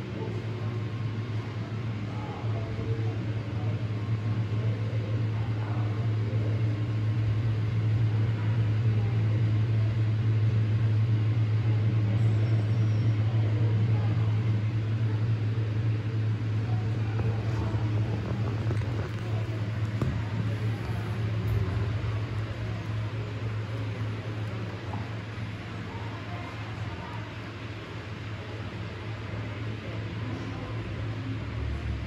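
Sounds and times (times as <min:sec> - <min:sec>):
faint voices murmuring: 0:00.0 - 0:32.0
steady low hum: 0:00.0 - 0:32.0.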